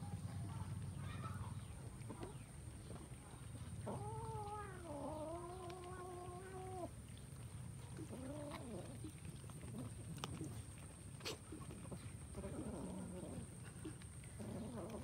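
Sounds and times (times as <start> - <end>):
faint clicks: 3.8 - 12.4.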